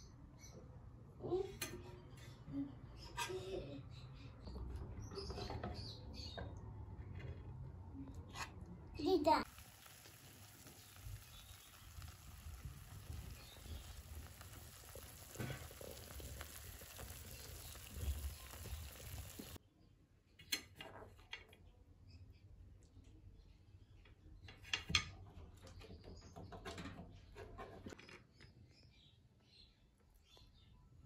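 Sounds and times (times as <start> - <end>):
chicken sizzling in frying pan: 9.4 - 19.6.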